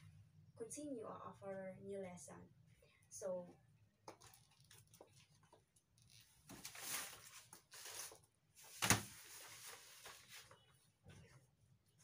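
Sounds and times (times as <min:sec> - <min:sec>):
paper sheet rustling: 0:06.5 - 0:10.8.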